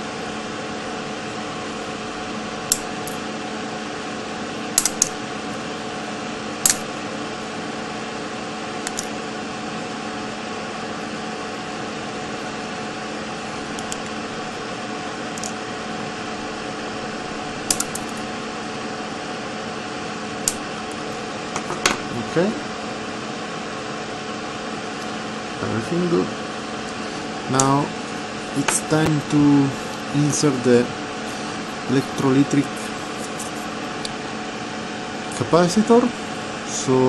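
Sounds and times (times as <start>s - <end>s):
steady background hum: 0.0s - 37.0s
side cutters snipping wire: 2.7s - 3.2s, 4.8s - 5.2s, 6.6s - 6.9s, 17.6s - 18.2s.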